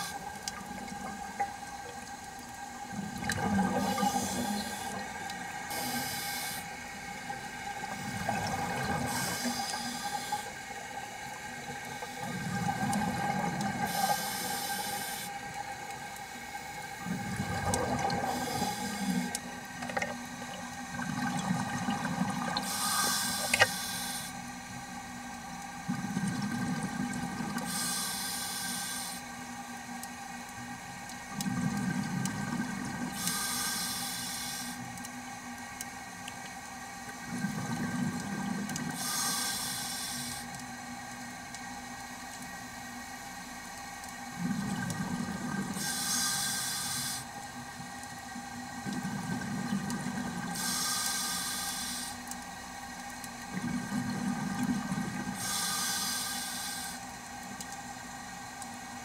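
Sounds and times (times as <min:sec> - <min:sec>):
faint steady hum: 0:00.0 - 0:59.0
exhaled bubbles rumbling: 0:02.8 - 0:05.8, 0:07.0 - 0:09.6, 0:10.6 - 0:14.2, 0:16.6 - 0:22.7, 0:25.8 - 0:27.7, 0:31.3 - 0:33.2, 0:37.1 - 0:39.0, 0:44.3 - 0:45.8, 0:48.3 - 0:50.6, 0:53.4 - 0:55.4
regulator inhale hissing: 0:03.8 - 0:05.0, 0:05.7 - 0:06.7, 0:09.1 - 0:10.6, 0:13.9 - 0:15.3, 0:18.2 - 0:19.4, 0:22.6 - 0:24.4, 0:27.6 - 0:29.2, 0:33.2 - 0:34.8, 0:39.0 - 0:40.5, 0:45.8 - 0:47.3, 0:50.6 - 0:52.2, 0:55.4 - 0:57.0.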